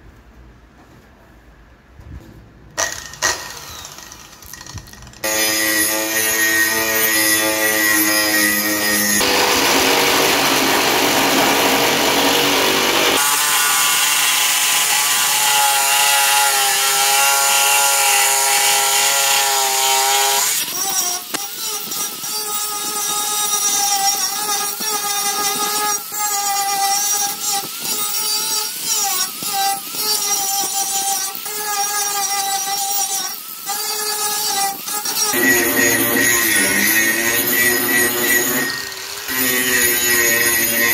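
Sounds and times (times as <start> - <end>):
jigsaw cutting wood: 2.8 - 40.9
angle grinder sanding wood: 5.2 - 40.9.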